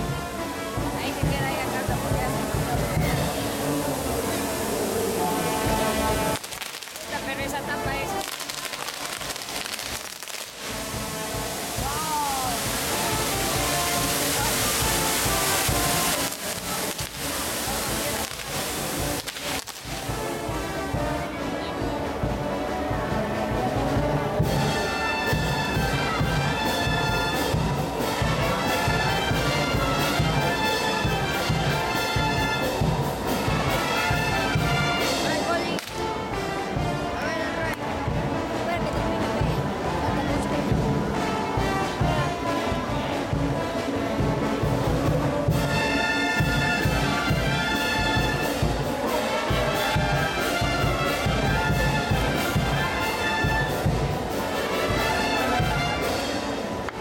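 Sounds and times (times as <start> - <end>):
steady drum beat: 0.0 - 21.2
horns holding chords: 0.0 - 44.3
brass band playing: 0.0 - 57.0.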